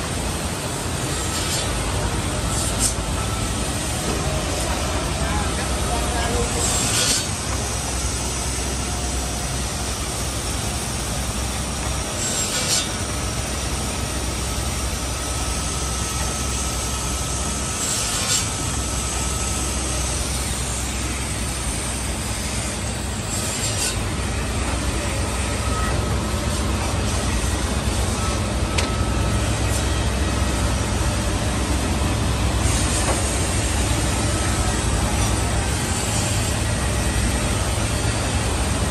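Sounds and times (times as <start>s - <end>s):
high rasp of cutting and drilling: 6.4s - 7.3s, 12.2s - 13.0s, 17.6s - 18.7s, 22.4s - 24.1s.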